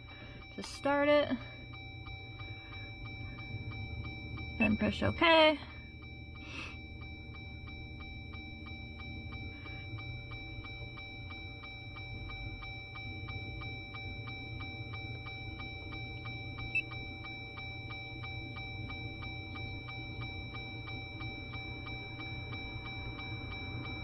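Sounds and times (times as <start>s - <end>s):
fast electronic ticking: 0.0s - 24.0s
high-pitched whine: 0.0s - 24.0s
low hum: 0.0s - 24.0s.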